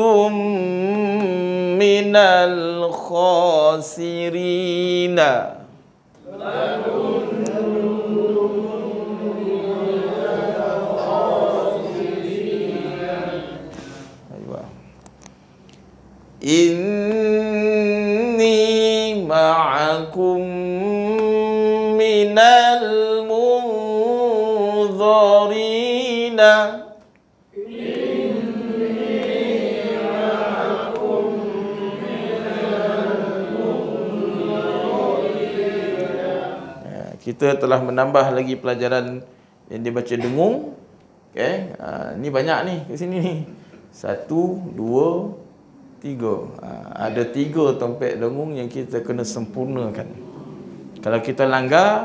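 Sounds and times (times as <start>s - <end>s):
teacher reciting: 0.0s - 15.0s, 16.4s - 52.0s
group of voices chanting: 6.2s - 13.9s, 27.6s - 36.9s.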